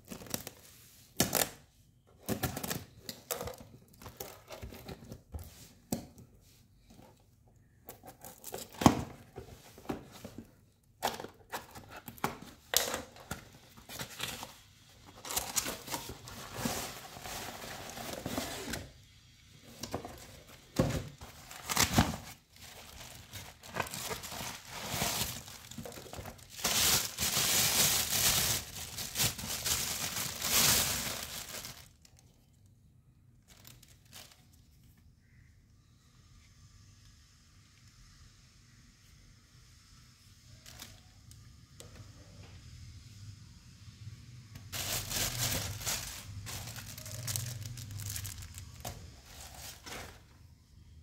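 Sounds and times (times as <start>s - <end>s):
plastic packaging crinkling: 11.1s - 18.8s, 20.2s - 32.4s, 44.7s - 50.2s.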